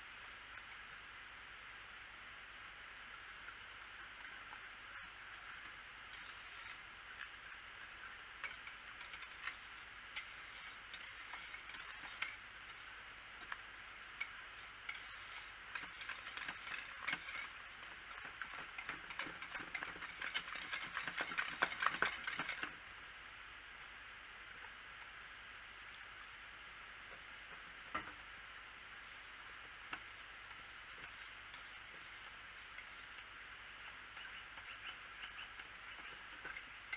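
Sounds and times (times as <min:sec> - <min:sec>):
whisk scraping ceramic crock: 0:06.0 - 0:06.9, 0:08.0 - 0:22.8, 0:30.9 - 0:36.9.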